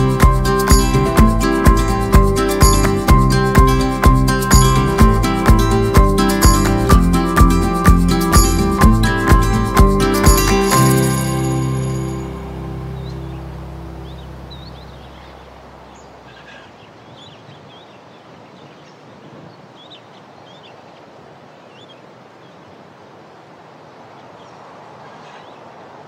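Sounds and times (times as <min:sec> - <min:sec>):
background music: 0:00.0 - 0:14.8
small birds chirping: 0:12.1 - 0:22.8, 0:24.0 - 0:26.0.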